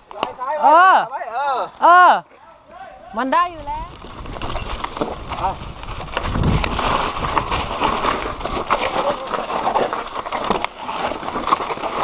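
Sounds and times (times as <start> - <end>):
low wind buffet: 3.4 - 9.0
tyres on loose dirt: 3.4 - 12.0
bike chain and frame clattering: 3.6 - 12.0.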